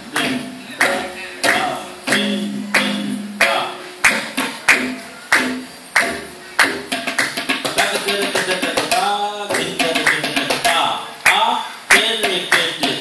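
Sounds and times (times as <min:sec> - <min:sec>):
tabla drums played together: 0:00.0 - 0:13.0
metal bass drum strokes: 0:02.0 - 0:05.0.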